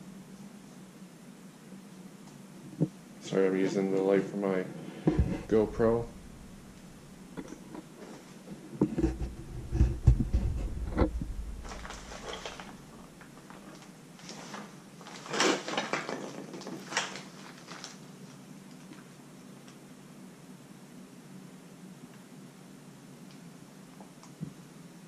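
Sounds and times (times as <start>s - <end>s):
low steady hum: 0.0s - 15.2s
camera handling thumps and knocks: 5.1s - 5.6s, 8.8s - 12.4s.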